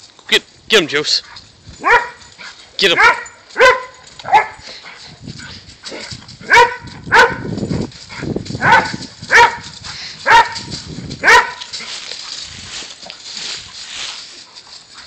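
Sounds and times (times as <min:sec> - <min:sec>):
dog barking: 0:01.8 - 0:02.3, 0:02.9 - 0:04.6, 0:06.4 - 0:07.5, 0:08.6 - 0:11.7.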